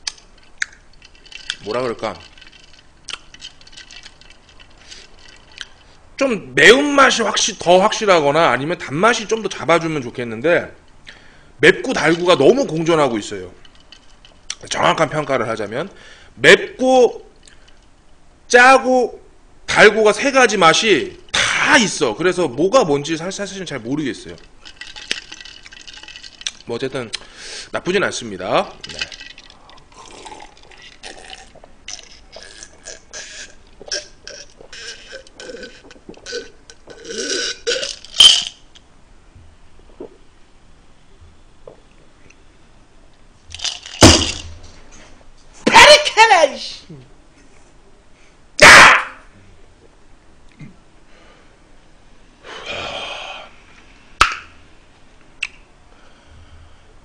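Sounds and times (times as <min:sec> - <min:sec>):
man swallowing: 0:29.2 - 0:38.5, 0:39.9 - 0:40.2
man burping: 0:30.0 - 0:38.0.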